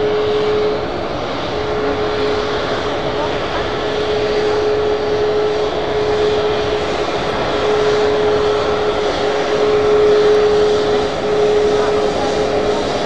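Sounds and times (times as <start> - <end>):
jet engines whining: 0.0 - 13.0.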